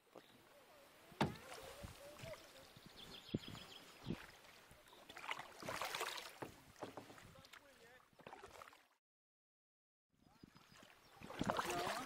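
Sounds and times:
paddle splashing in water: 0:01.1 - 0:09.0, 0:10.4 - 0:12.0.

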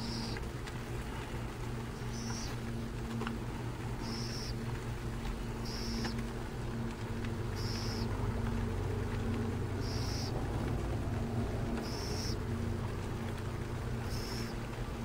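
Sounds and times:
owl chick raspy begging calls: 0:00.0 - 0:00.4, 0:02.0 - 0:02.6, 0:04.0 - 0:04.6, 0:05.6 - 0:06.2, 0:07.5 - 0:08.1, 0:09.8 - 0:10.4, 0:11.8 - 0:12.4, 0:14.0 - 0:14.6
steady low drone: 0:00.0 - 0:15.0.

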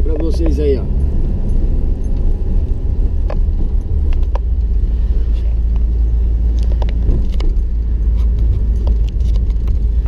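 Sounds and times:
car engine and road rumble: 0:00.0 - 0:10.0
light clicks and rattles: 0:05.7 - 0:10.0.

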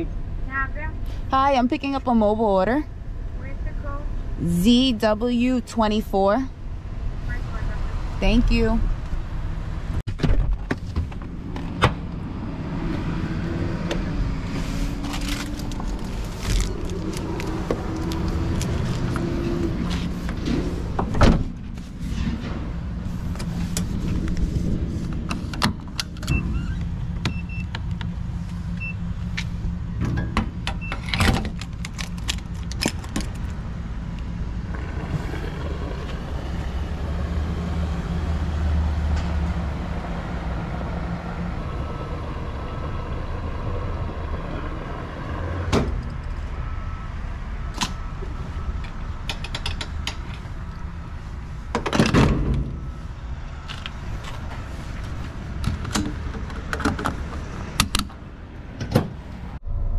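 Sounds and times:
short beeps from fuel pump: 0:27.3 - 0:27.7.

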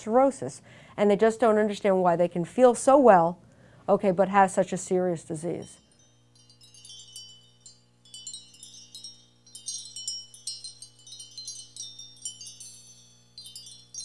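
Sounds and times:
high-pitched chimes tinkling: 0:05.5 - 0:14.0.

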